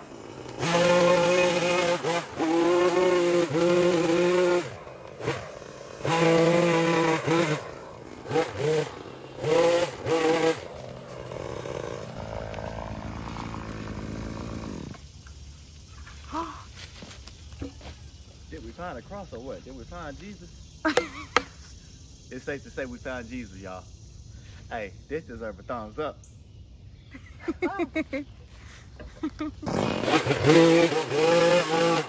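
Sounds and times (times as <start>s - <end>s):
two-stroke engine revving: 0.0s - 15.1s, 29.5s - 32.0s.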